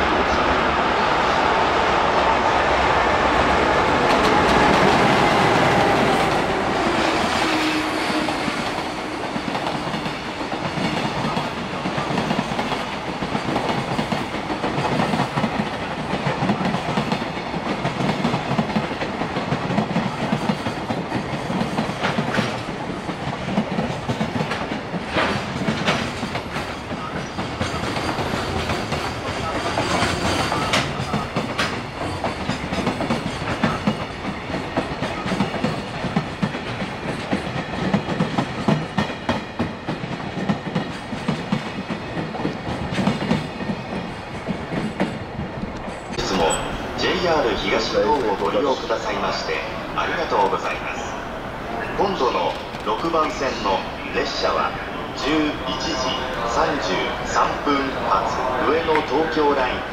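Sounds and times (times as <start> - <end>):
train wheels clattering over rail joints: 7.3 - 46.2.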